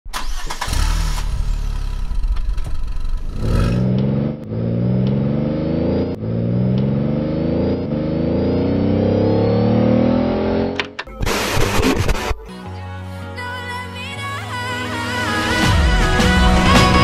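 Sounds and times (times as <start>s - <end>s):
car engine accelerating: 0.1s - 12.3s.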